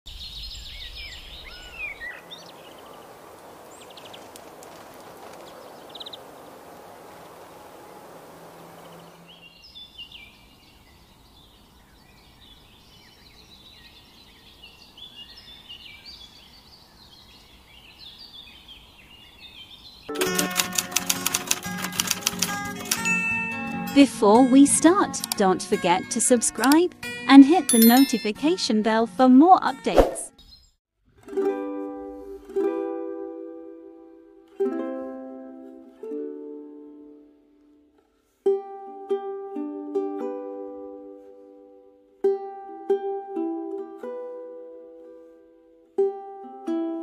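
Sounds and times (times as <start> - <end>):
small birds chirping: 0.1 - 20.1
background hiss: 0.2 - 19.9
bright music jingle: 22.9 - 26.0, 27.7 - 28.7.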